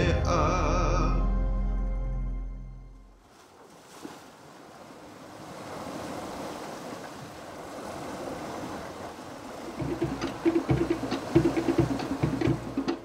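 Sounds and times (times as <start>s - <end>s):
wind: 2.8s - 13.0s
sea water rushing past a boat: 3.2s - 13.0s
percussion music with drums: 9.8s - 13.0s.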